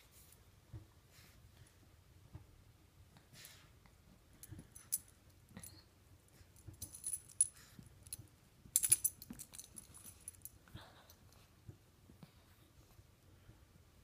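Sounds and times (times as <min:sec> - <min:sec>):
metal dog tags jingling: 0:08.8 - 0:10.6.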